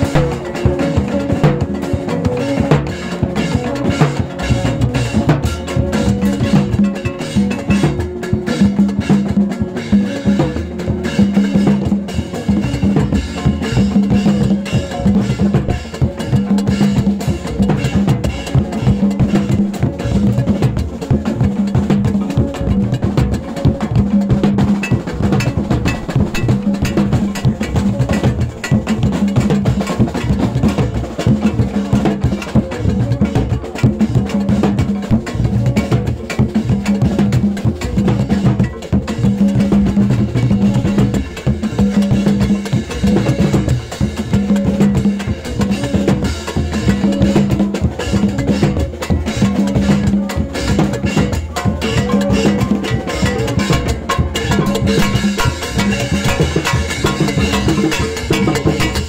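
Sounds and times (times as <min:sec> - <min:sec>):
hand drums: 0:00.0 - 0:59.0
metal plate struck with stick: 0:24.0 - 0:30.4, 0:49.7 - 0:59.0.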